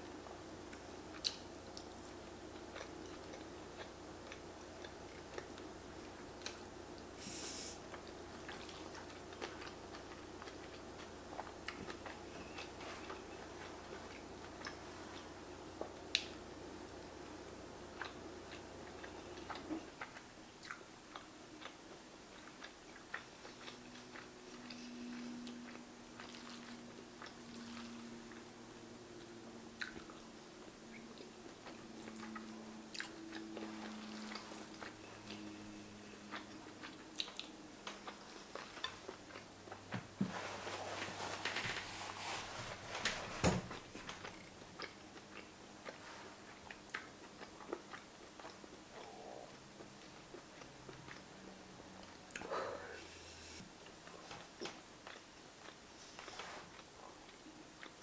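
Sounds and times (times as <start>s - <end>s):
steady low hum: 0.0s - 58.0s
chewing and biting food: 7.9s - 16.2s, 17.9s - 28.5s, 30.9s - 39.8s, 44.0s - 51.3s, 53.8s - 55.8s.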